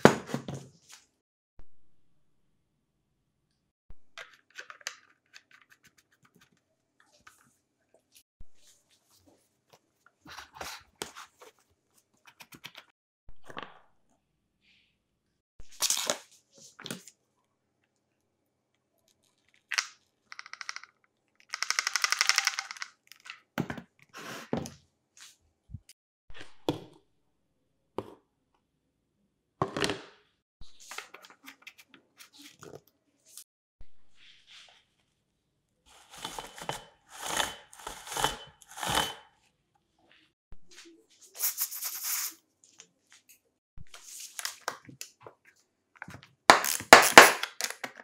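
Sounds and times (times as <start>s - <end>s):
fast rattling clicks: 20.4s - 23.0s.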